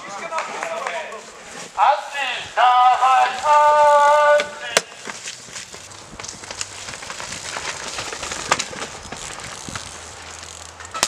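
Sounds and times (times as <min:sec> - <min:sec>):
bike clicking and rattling: 0:00.0 - 0:01.9, 0:02.8 - 0:11.0
bike tyres skidding over dirt: 0:00.0 - 0:11.0
person shouting: 0:02.6 - 0:04.8.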